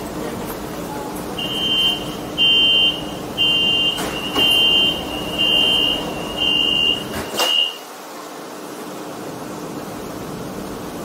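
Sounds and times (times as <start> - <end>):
low steady hum in train car: 0.0 - 11.0
train door warning beeps: 1.4 - 7.9.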